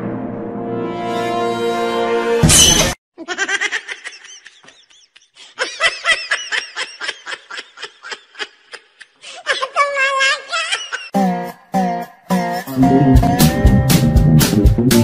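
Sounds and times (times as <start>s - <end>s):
person laughing: 3.2s - 11.2s.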